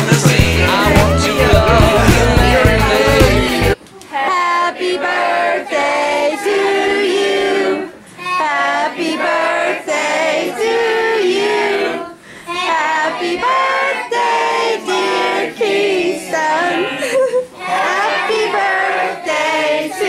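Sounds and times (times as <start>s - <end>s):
person singing: 0.0s - 4.9s.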